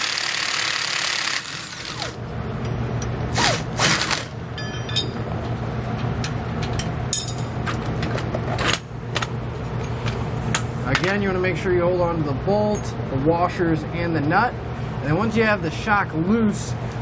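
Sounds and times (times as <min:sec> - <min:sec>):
metal clicks and clinks: 0:04.6 - 0:05.2.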